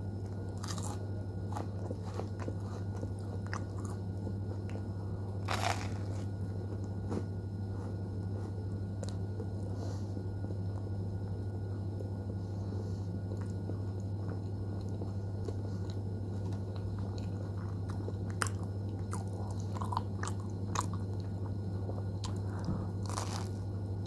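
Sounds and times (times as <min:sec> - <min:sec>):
low hum: 0:00.0 - 0:24.0
biting into bread: 0:00.6 - 0:04.1, 0:05.4 - 0:07.3, 0:23.0 - 0:23.7.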